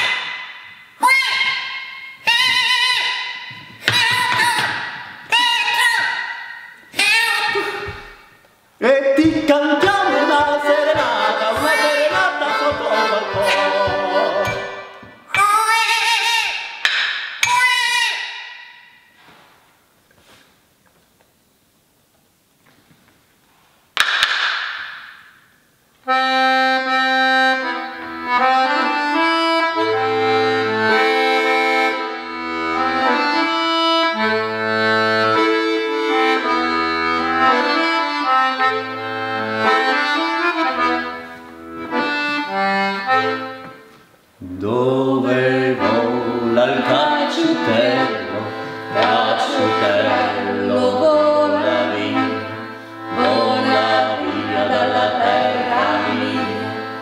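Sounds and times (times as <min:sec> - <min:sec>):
button accordion playing: 0:09.7 - 0:15.3, 0:26.0 - 0:44.0, 0:45.4 - 0:57.0
sharp knock: 0:16.8 - 0:17.6, 0:24.0 - 0:25.4.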